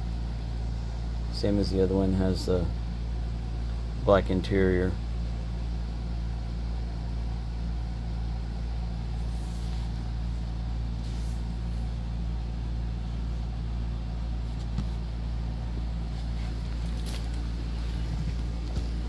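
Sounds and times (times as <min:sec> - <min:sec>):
steady low hum: 0:00.0 - 0:19.0
book cover rustling and tapping: 0:14.4 - 0:15.1, 0:16.2 - 0:19.0.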